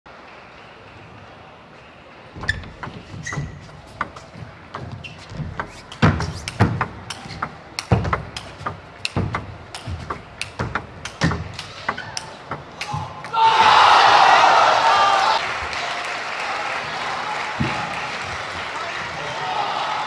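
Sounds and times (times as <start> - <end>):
footsteps thudding on floor: 2.4 - 11.5
ping pong ball clicking: 4.8 - 12.8.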